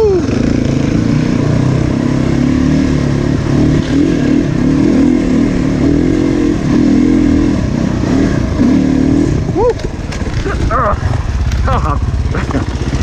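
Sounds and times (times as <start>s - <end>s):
motorcycle engine revving: 0.0s - 13.0s.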